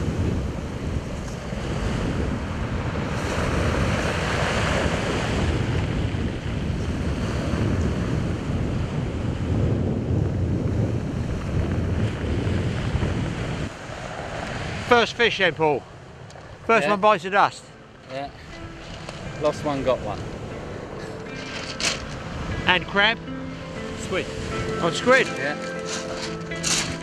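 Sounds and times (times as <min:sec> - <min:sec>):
surf breaking on pebble beach: 0:00.0 - 0:08.5
wind buffeting microphone: 0:00.0 - 0:16.7, 0:17.8 - 0:27.0.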